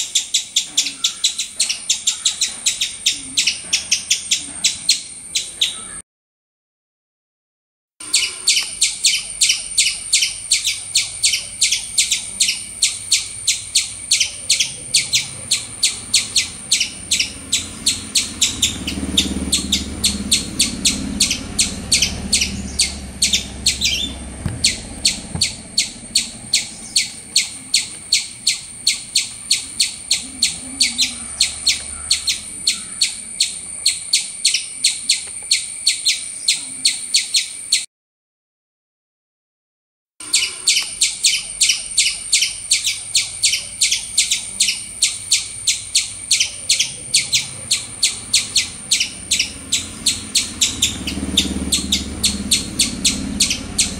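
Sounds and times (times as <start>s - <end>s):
squirrel chirping: 0.0s - 6.0s, 8.0s - 37.9s, 40.2s - 53.9s.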